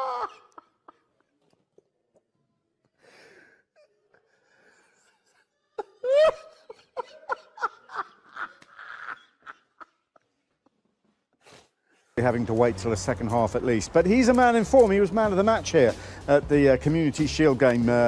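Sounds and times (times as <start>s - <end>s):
man laughing: 0.0s - 1.4s, 5.0s - 10.4s
faint breaths: 2.8s - 5.5s, 15.9s - 16.3s.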